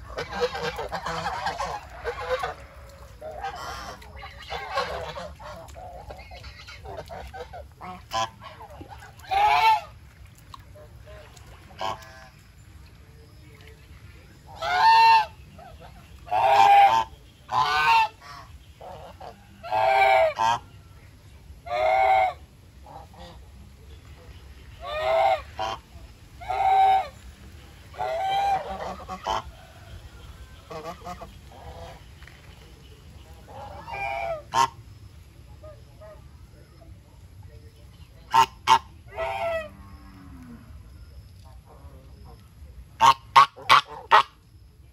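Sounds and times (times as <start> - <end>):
geese honking: 0.0 - 10.0, 11.0 - 12.4, 14.5 - 20.7, 21.6 - 23.4, 24.8 - 27.2, 27.9 - 32.1, 33.4 - 34.8, 38.3 - 39.8, 43.0 - 44.3.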